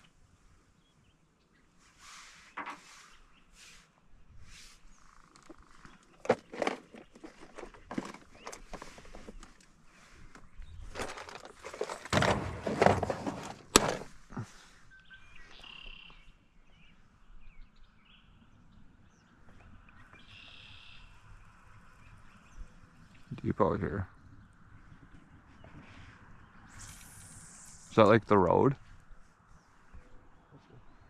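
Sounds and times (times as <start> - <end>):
rummaging through plastic box: 6.2 - 9.6, 10.8 - 14.1
bag rustling: 10.9 - 14.1.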